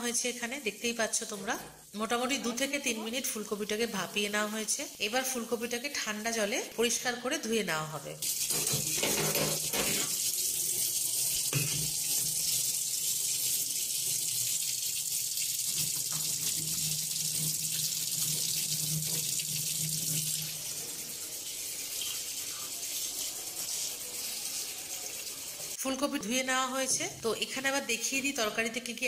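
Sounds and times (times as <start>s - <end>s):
tap water splashing into steel bowl: 8.4s - 10.2s, 11.5s - 12.3s, 15.7s - 20.2s.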